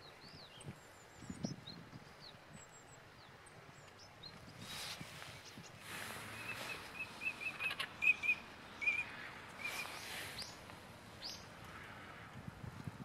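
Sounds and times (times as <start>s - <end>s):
bird calling high notes: 6.3s - 10.5s.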